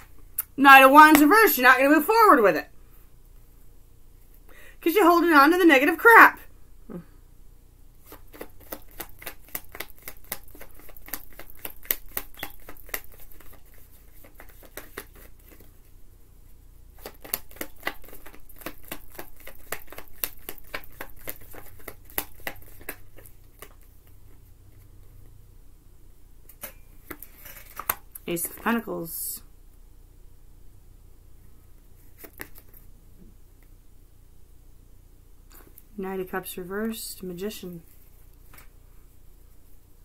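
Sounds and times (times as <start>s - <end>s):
cards being shuffled: 8.0s - 15.8s, 17.0s - 24.9s, 27.0s - 28.7s, 32.0s - 32.9s.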